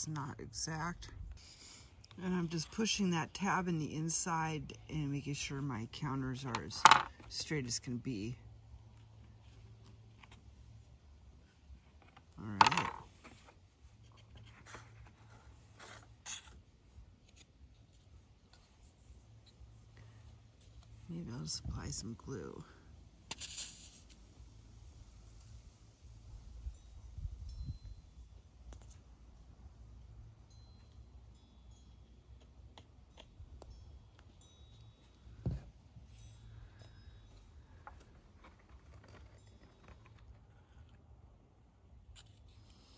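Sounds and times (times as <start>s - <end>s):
faint high chiming tones: 29.9s - 38.2s
cardstock paper rustling: 37.8s - 40.9s.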